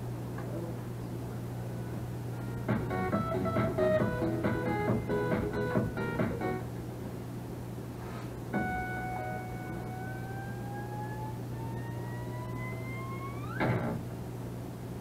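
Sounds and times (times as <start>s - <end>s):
steady low hum: 0.0s - 15.0s
rising whistle-like tone: 9.6s - 13.6s.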